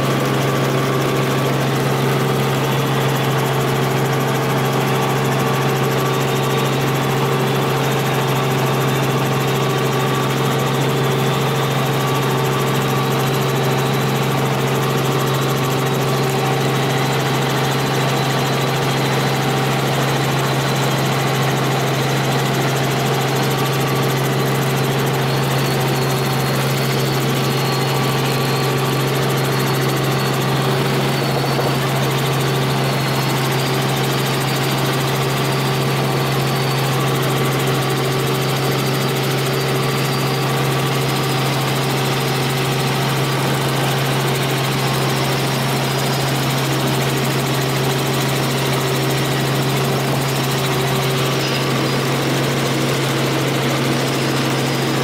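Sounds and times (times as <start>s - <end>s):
helicopter cabin drone: 0.0s - 55.0s.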